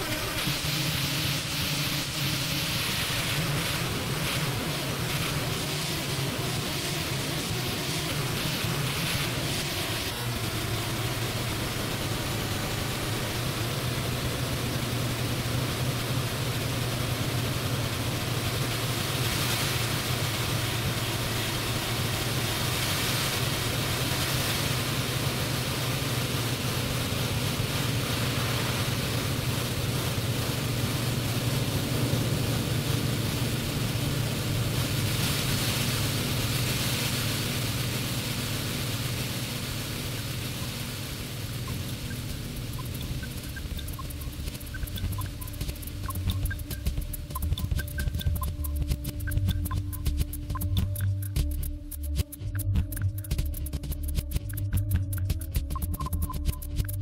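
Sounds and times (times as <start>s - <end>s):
hiss-like noise: 0.0s - 57.0s.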